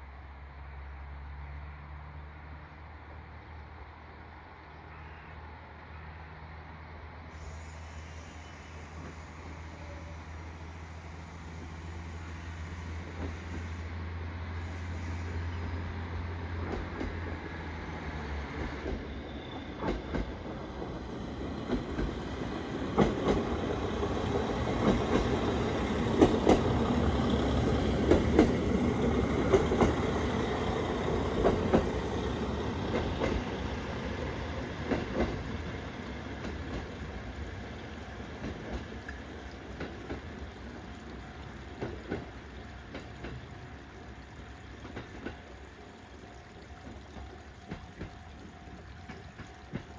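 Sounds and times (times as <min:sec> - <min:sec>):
diesel railcar engine running: 0:00.0 - 0:49.9
wheels clacking over rail joints: 0:18.5 - 0:49.9.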